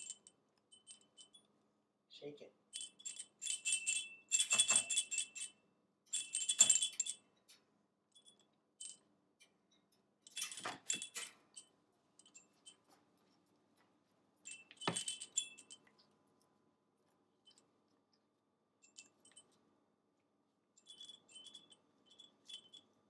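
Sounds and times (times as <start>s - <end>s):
baby rattle bell jingling: 2.7s - 5.5s, 6.1s - 7.2s, 10.3s - 11.3s, 14.4s - 15.8s, 20.9s - 22.9s.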